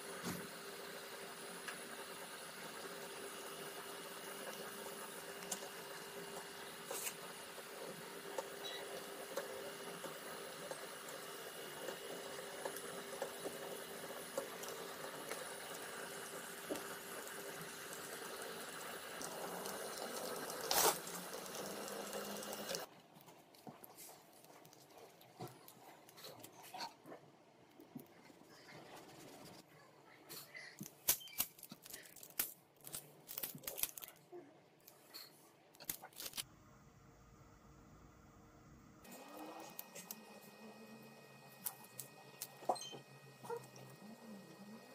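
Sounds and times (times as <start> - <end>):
metallic foil crinkling and crackling: 20.6 - 21.2, 30.8 - 34.3, 35.8 - 36.4
low machine hum: 36.5 - 44.9.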